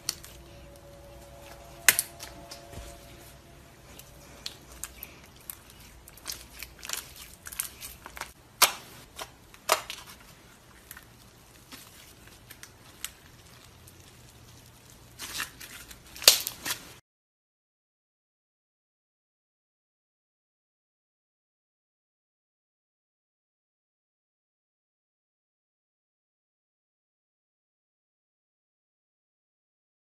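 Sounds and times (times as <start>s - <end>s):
slime squishing with wet pops: 3.9s - 17.0s.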